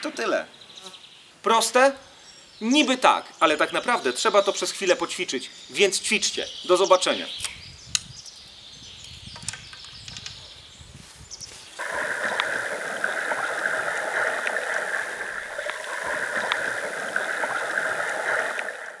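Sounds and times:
water gurgling and lapping: 0:11.8 - 0:19.0.

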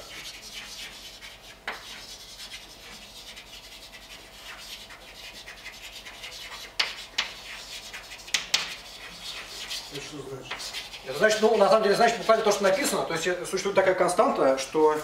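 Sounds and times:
chalk tapping on board: 0:00.0 - 0:13.0
chalk scratching on blackboard: 0:00.0 - 0:13.1.

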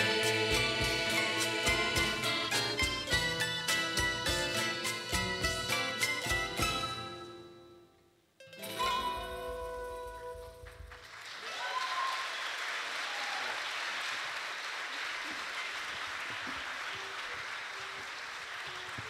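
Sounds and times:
audience applause: 0:10.5 - 0:19.0.

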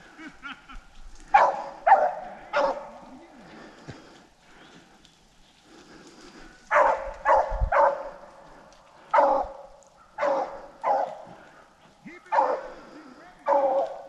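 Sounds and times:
dogs barking: 0:01.3 - 0:03.2, 0:06.7 - 0:14.0.

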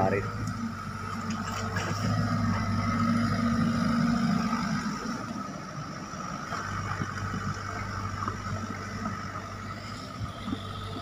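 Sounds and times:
excavator diesel engine droning: 0:00.0 - 0:11.0.

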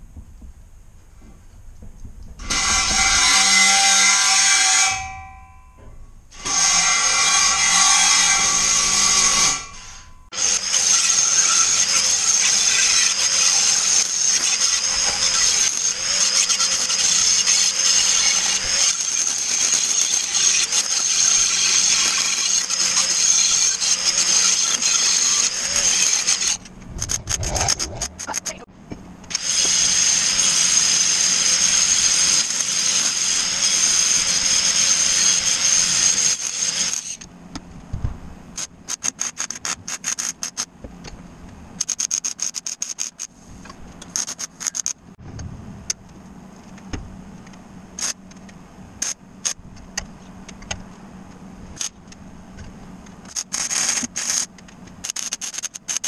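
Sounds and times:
welding arc buzzing: 0:06.4 - 0:28.6, 0:53.3 - 0:56.0.

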